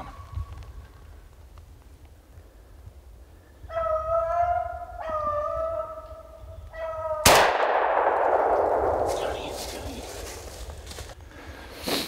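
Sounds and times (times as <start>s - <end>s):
loud gunshot: 7.2s - 10.2s.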